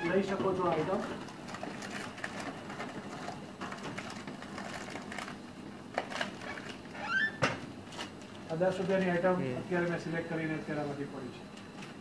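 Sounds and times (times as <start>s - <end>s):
steady low hum: 7.6s - 12.0s.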